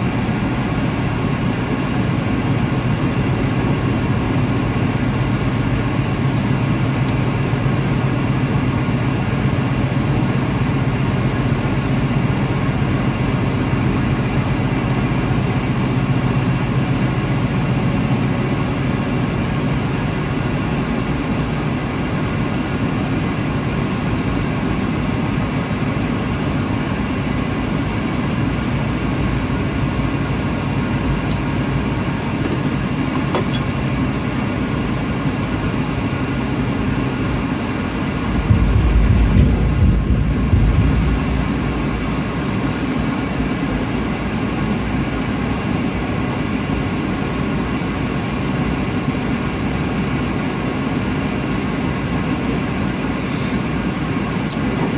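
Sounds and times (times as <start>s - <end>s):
diesel truck engine running: 0.0s - 54.9s.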